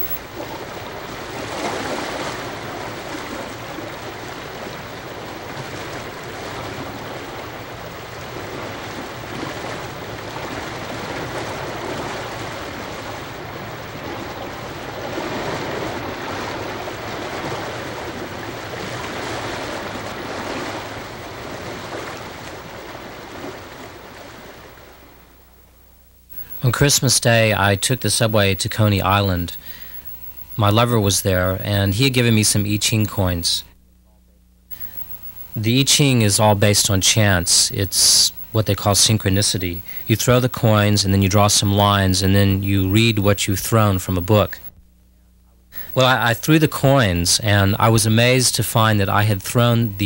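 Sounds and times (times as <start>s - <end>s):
ocean surf on a beach: 0.0s - 25.3s, 35.6s - 44.6s, 45.8s - 50.0s.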